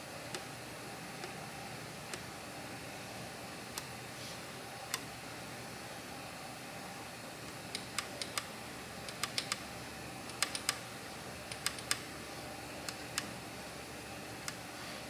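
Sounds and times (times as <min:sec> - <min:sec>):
ratchet clicks: 0:09.1 - 0:09.6, 0:10.3 - 0:10.8, 0:11.5 - 0:12.0.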